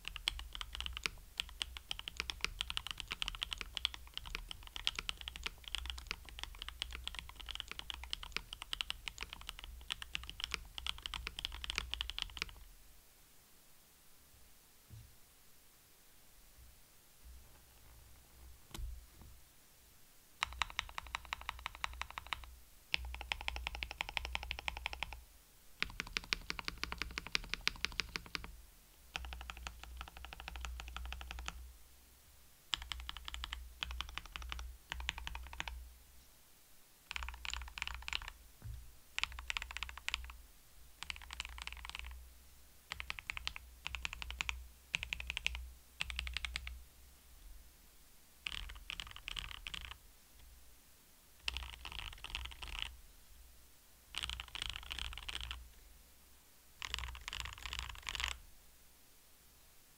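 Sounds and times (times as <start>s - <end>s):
mechanical keyboard typing: 0.0s - 12.7s, 20.4s - 25.2s, 25.8s - 28.5s, 29.1s - 31.6s, 32.7s - 35.8s, 37.1s - 38.4s, 39.2s - 40.4s, 41.0s - 42.2s, 42.9s - 46.7s, 48.4s - 50.0s, 51.4s - 52.9s, 54.1s - 55.6s, 56.8s - 58.4s.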